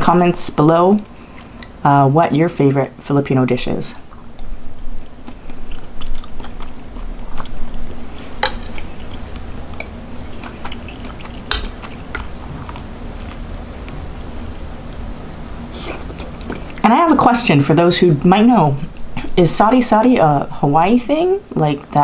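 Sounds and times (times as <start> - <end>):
person chewing: 1.1 - 1.8, 4.0 - 16.8.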